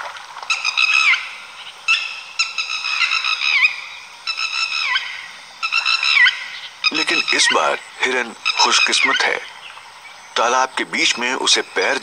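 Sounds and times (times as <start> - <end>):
high honking animal calls: 0.5 - 9.6.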